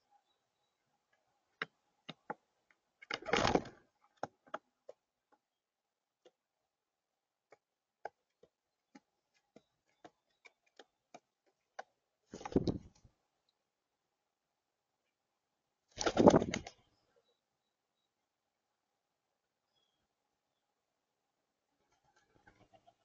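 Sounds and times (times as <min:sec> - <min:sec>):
birds pecking on tabletop: 0:01.0 - 0:13.1
bird wings flapping: 0:03.1 - 0:03.8, 0:12.3 - 0:13.1, 0:15.9 - 0:16.8.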